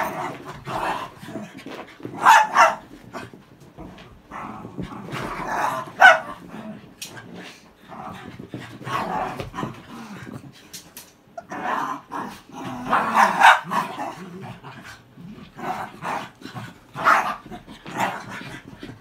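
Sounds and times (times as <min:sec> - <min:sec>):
dogs growling: 0:00.0 - 0:01.7, 0:03.2 - 0:10.6, 0:11.4 - 0:19.0
dogs barking and yapping: 0:02.2 - 0:03.0, 0:05.4 - 0:06.5, 0:12.9 - 0:14.0, 0:17.0 - 0:18.2.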